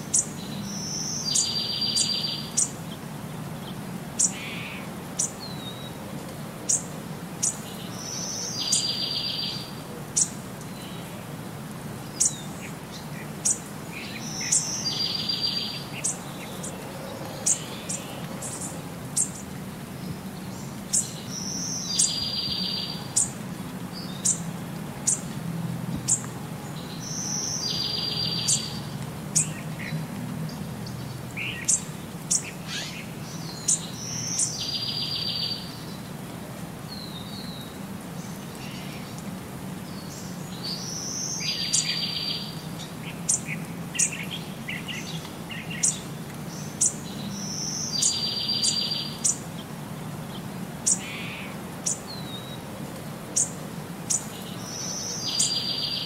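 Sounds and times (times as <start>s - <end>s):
bird chirping: 0.1s - 2.7s, 6.7s - 11.1s, 12.2s - 23.4s, 26.1s - 29.9s, 30.5s - 36.0s, 39.9s - 49.4s, 53.4s - 56.0s.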